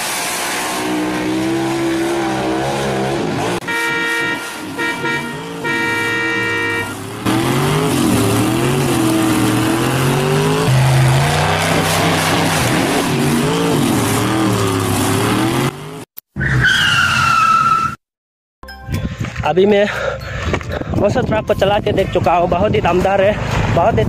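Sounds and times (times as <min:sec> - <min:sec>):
race car engine revving: 0:00.0 - 0:16.1
tyres skidding: 0:00.0 - 0:18.0
horn-like tone: 0:03.6 - 0:07.1
short falling squeal: 0:16.4 - 0:18.0.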